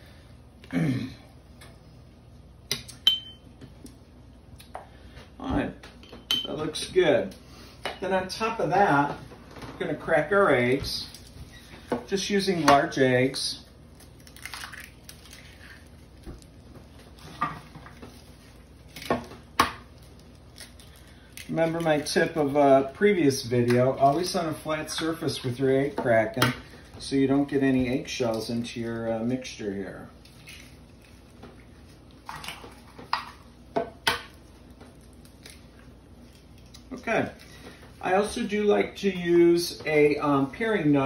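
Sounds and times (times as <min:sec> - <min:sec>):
eggs tapping and shells cracking: 0:14.0 - 0:16.8.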